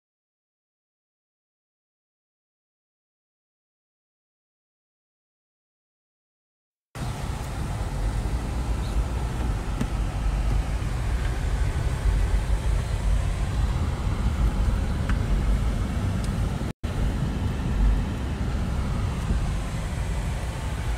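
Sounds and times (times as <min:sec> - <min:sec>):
road and engine rumble: 0:07.0 - 0:20.9.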